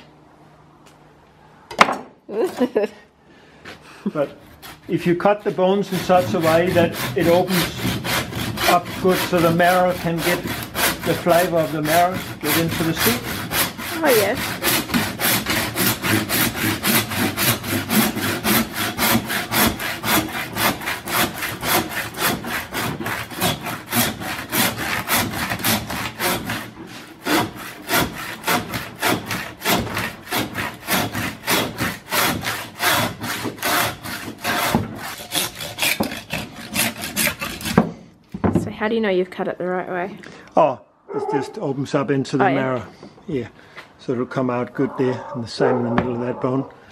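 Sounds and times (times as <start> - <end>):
hand saw rasping through bone: 4.3 - 38.0.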